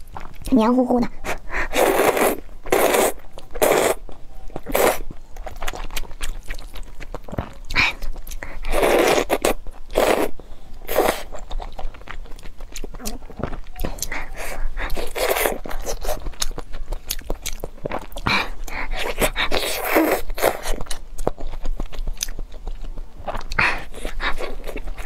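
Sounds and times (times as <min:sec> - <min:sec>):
wet chewing: 0:00.0 - 0:25.0
noodles slurping: 0:01.4 - 0:04.0, 0:04.6 - 0:12.2, 0:14.0 - 0:16.6, 0:17.5 - 0:20.9.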